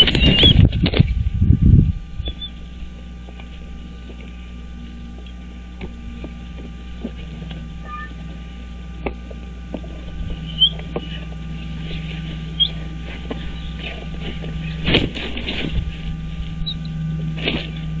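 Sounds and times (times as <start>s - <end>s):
steady low hum: 0.0s - 18.0s
short high chirps: 7.8s - 8.1s
knocks and rustles of sticks: 9.0s - 16.1s, 17.4s - 17.8s.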